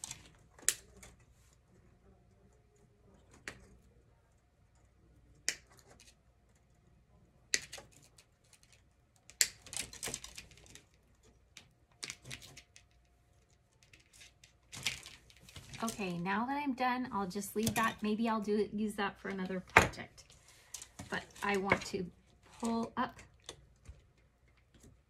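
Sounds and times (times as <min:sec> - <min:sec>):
wire cutters snipping wire: 0:17.6 - 0:18.0.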